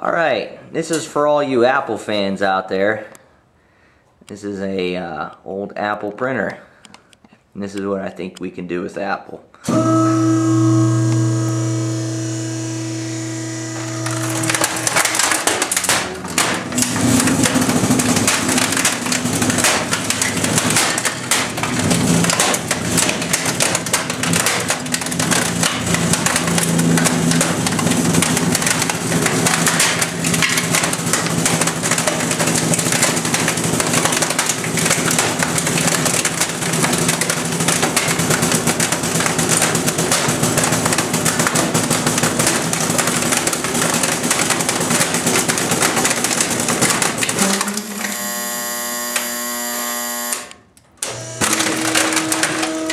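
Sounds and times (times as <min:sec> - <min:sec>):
hydraulic compactor humming: 0:09.6 - 0:52.9
plastic crackling and crunching: 0:11.0 - 0:52.9.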